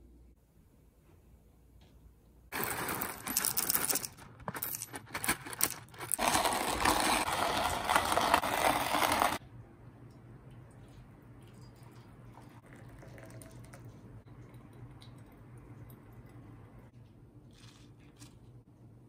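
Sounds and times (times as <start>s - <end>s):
coffee beans clattering: 2.5s - 9.4s
coffee grinder crunching beans: 2.5s - 9.4s.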